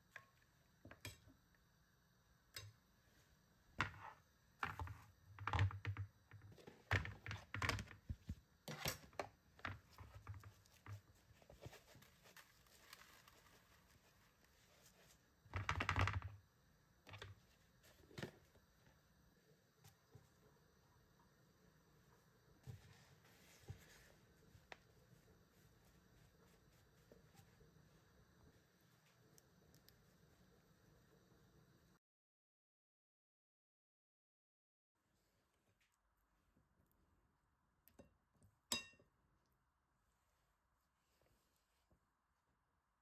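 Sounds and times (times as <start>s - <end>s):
metal spoon in ceramic bowl: 38.7s - 39.0s.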